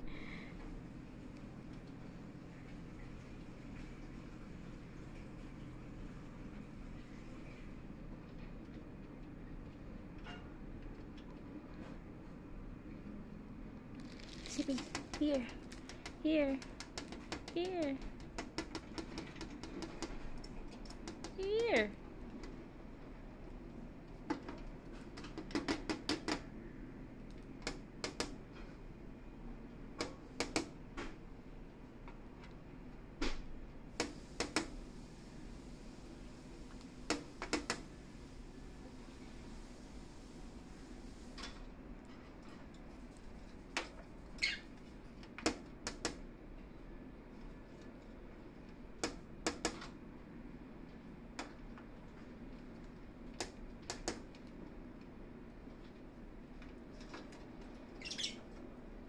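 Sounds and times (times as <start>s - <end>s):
beak tapping plastic cage wall: 14.6s - 22.6s, 24.3s - 26.5s, 27.3s - 28.4s, 30.0s - 30.8s, 37.1s - 37.8s, 45.2s - 46.2s, 49.0s - 49.9s, 53.3s - 54.6s.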